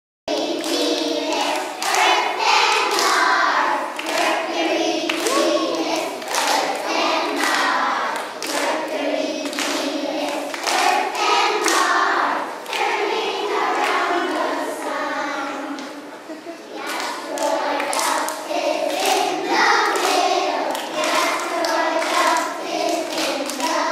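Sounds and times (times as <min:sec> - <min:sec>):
hand claps: 0:00.3 - 0:02.1, 0:02.7 - 0:03.3, 0:04.0 - 0:04.3, 0:05.1 - 0:12.0, 0:16.9 - 0:23.9
children singing: 0:00.3 - 0:23.9.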